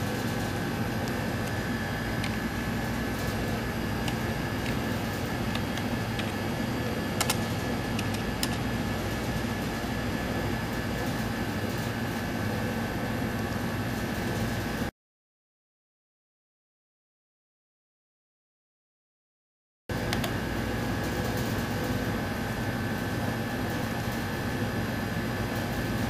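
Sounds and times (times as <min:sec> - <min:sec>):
fans and ventilation hum: 0:00.0 - 0:14.9, 0:19.9 - 0:26.0
low electrical hum: 0:00.0 - 0:14.9, 0:19.9 - 0:26.0
sharp clicks: 0:07.2 - 0:08.6.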